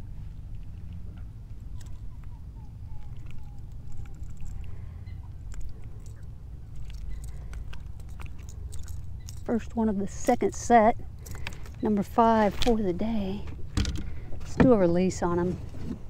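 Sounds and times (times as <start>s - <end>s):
low steady rumble: 0.0s - 16.0s.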